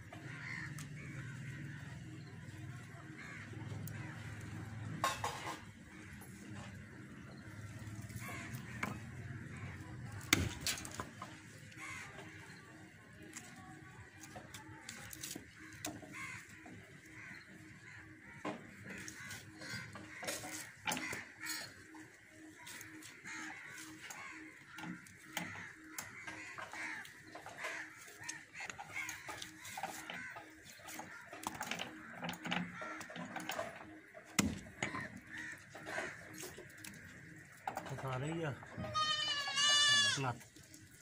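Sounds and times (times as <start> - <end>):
birds calling: 0.0 - 41.0.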